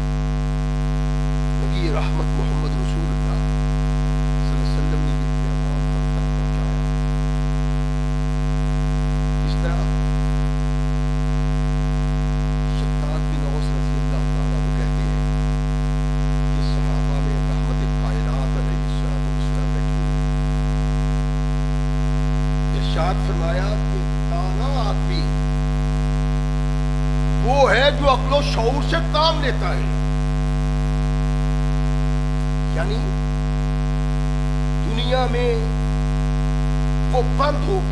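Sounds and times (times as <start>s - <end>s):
electrical mains hum: 0.0s - 37.9s
faint voice: 1.6s - 3.5s, 4.4s - 7.2s.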